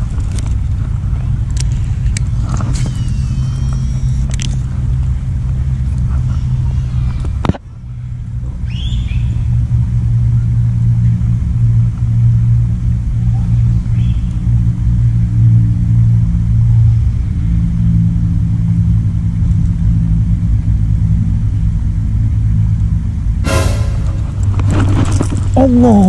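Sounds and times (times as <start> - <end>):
engine idling hum: 0.0 - 23.4.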